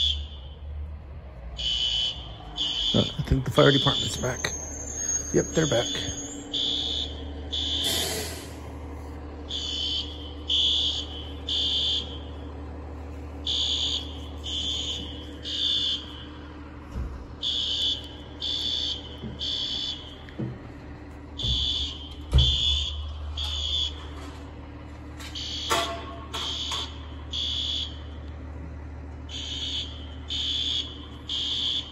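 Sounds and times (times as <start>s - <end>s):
fire alarm beeping: 0.0s - 0.6s, 1.6s - 8.0s, 9.5s - 12.4s, 13.4s - 16.4s, 17.4s - 20.4s, 21.4s - 24.3s, 25.2s - 28.1s, 29.3s - 31.9s
steady low hum: 0.0s - 31.9s.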